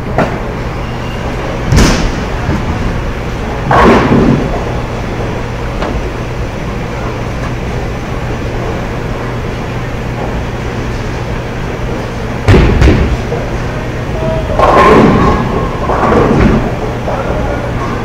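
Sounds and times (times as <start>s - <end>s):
steady low hum: 0.0s - 18.0s
bowling ball striking pins: 3.6s - 6.0s, 14.2s - 17.2s.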